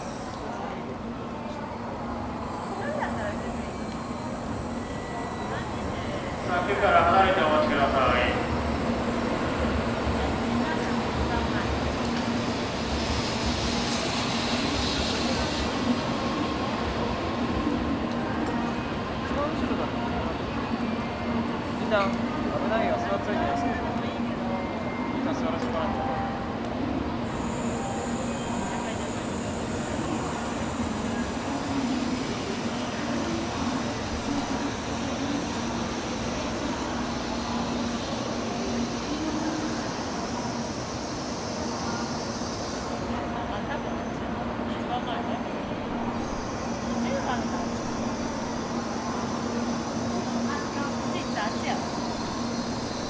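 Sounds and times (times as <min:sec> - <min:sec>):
train rumbling on tracks: 0:00.0 - 0:53.0.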